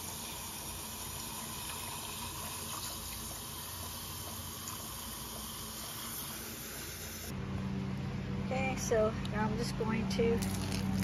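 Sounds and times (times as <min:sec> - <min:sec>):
water running from hose: 0:00.0 - 0:07.3, 0:10.4 - 0:11.0.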